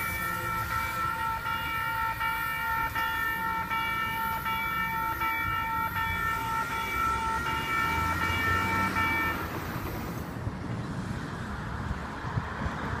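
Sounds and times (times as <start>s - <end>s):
crossing bells ringing: 0.0s - 10.2s
train rumbling: 0.0s - 13.0s.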